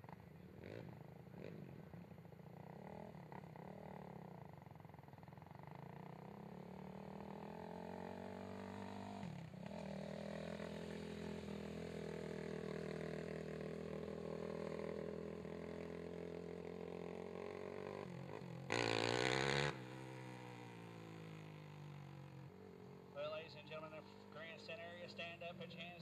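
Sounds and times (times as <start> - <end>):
atv engine running: 0.0 - 26.0
engine revving: 5.8 - 22.4.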